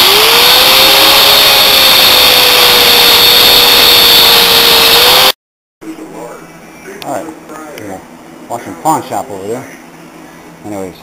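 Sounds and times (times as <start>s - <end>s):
angle grinder cutting steel: 0.0s - 5.4s.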